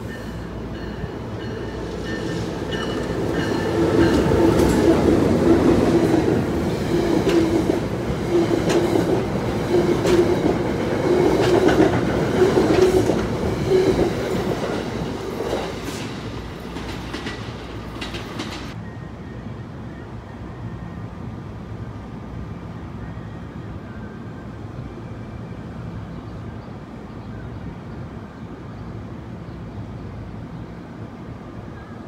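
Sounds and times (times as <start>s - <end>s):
steady train hum: 0.0s - 32.0s
train wheels clicking over rail joints: 1.0s - 18.8s.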